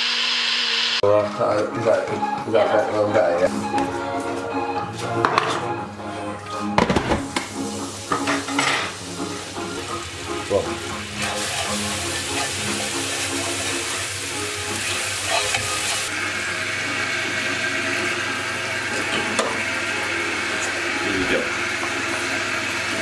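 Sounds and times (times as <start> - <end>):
batter sizzling in a frying pan: 7.2 - 23.0.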